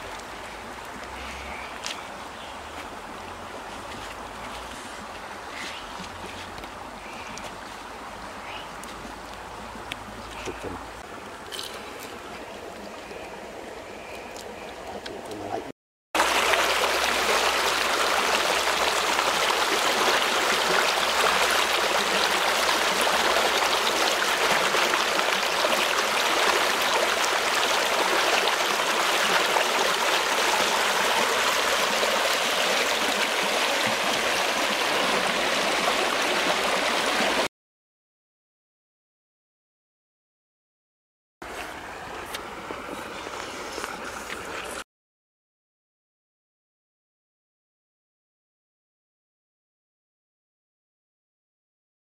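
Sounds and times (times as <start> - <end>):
quiet outdoor ambience: 0.0 - 35.7, 41.4 - 44.8
rush of flowing water: 0.0 - 37.5.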